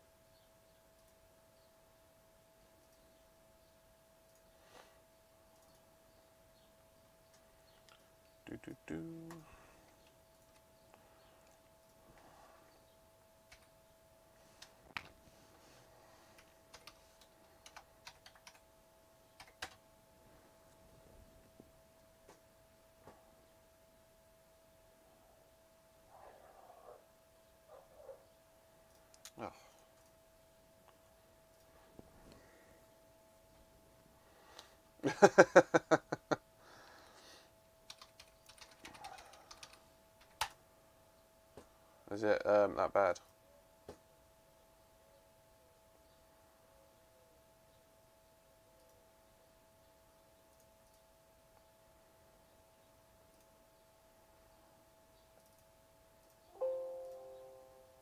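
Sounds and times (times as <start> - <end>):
faint steady hum: 0.0 - 58.0
keyboard typing clicks: 13.5 - 13.8, 16.4 - 18.6, 19.4 - 19.8, 37.9 - 40.6.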